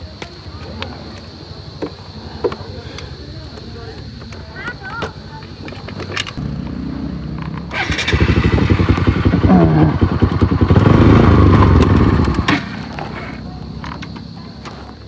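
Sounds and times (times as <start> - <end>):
motorcycle engine running: 6.4 - 14.4.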